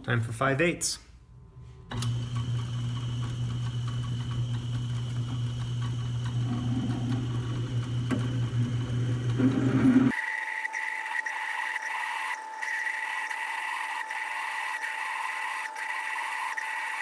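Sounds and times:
lathe motor and belt hum: 0:01.9 - 0:17.0
thin high whine: 0:09.4 - 0:17.0.

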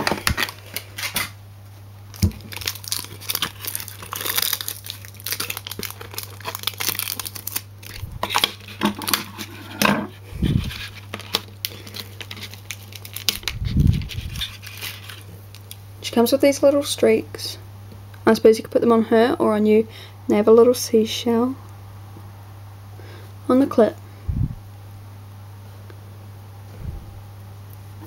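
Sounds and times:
cardboard crinkling and tearing: 0:00.0 - 0:01.3, 0:02.1 - 0:09.8, 0:10.4 - 0:15.7.

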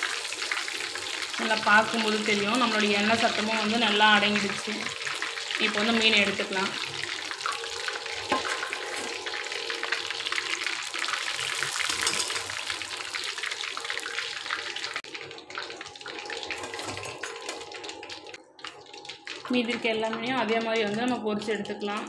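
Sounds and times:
fish sizzling in hot oil: 0:00.0 - 0:22.0.

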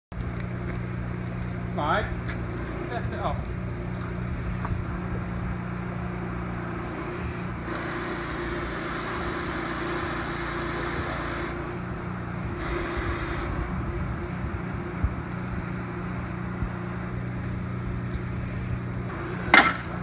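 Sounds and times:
engine humming: 0:00.1 - 0:20.0
water mist lance hissing: 0:07.6 - 0:11.7, 0:12.6 - 0:13.6.

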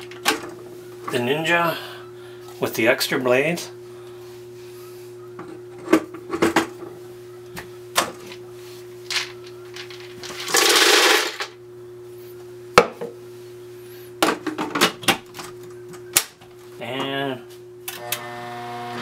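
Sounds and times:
steady hum: 0:00.0 - 0:18.9
peanuts poured into plastic jar: 0:10.4 - 0:11.4.

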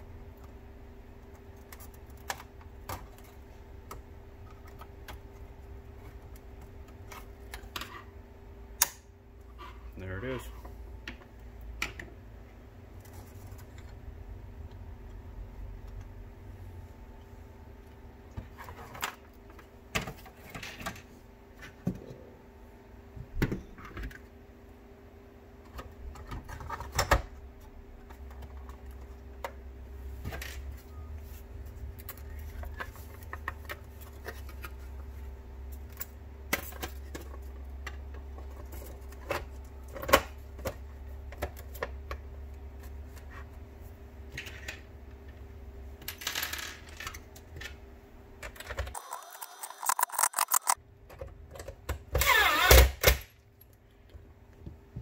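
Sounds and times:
plastic parts clicking and tapping: 0:48.4 - 0:52.1.

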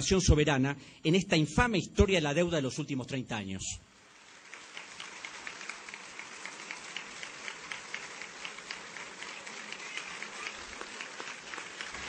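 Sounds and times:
large audience applauding: 0:04.2 - 0:12.0.

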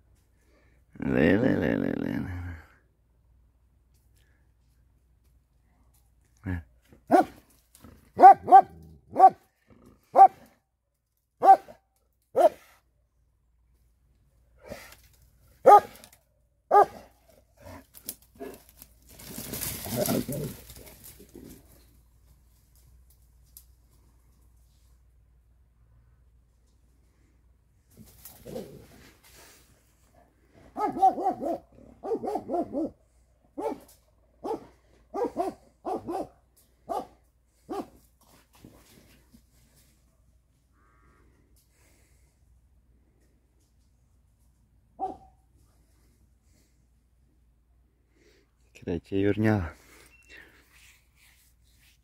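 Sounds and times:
dog barking: 0:07.1 - 0:07.4, 0:08.2 - 0:09.4, 0:10.1 - 0:10.5, 0:11.4 - 0:12.7, 0:15.6 - 0:16.0, 0:16.7 - 0:17.1, 0:30.7 - 0:33.0, 0:33.6 - 0:38.0, 0:45.0 - 0:45.4
brush rustling and crashing: 0:17.9 - 0:21.9.

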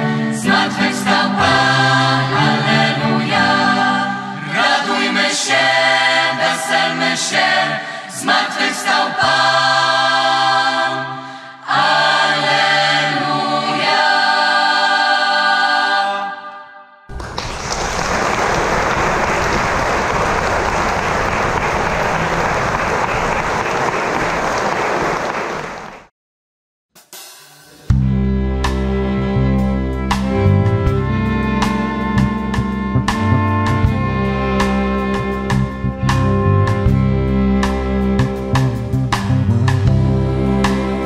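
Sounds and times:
choir singing: 0:00.0 - 0:17.1, 0:40.2 - 0:41.0
audience applause: 0:17.1 - 0:26.1.

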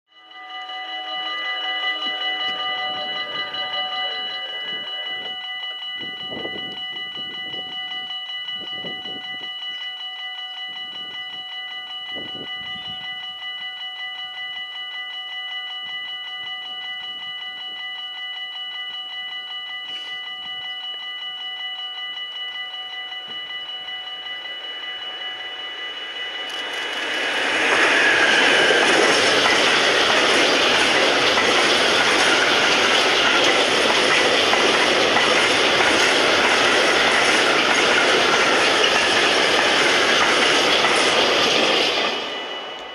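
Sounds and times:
electric locomotive passing: 0:00.1 - 0:19.5, 0:20.2 - 0:42.9
high ringing of approaching train: 0:00.1 - 0:42.9
train wheels clickety-clack: 0:23.2 - 0:42.9.

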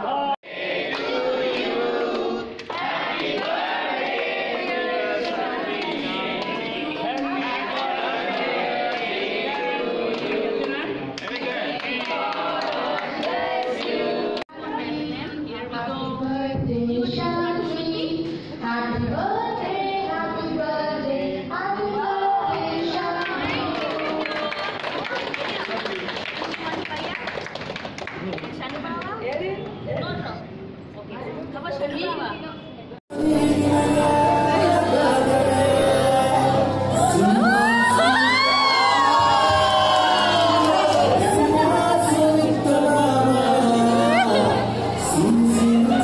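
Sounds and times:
group of people singing: 0:00.0 - 0:15.0, 0:33.1 - 0:46.0.

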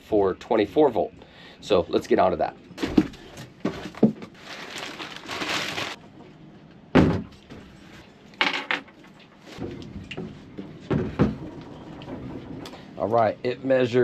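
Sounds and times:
cardboard packing rustling: 0:02.8 - 0:06.0.

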